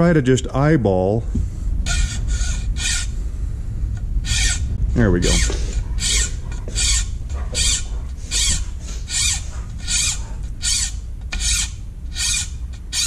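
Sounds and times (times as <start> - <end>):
file rasping on steel blade: 1.9 - 3.1, 4.2 - 13.0.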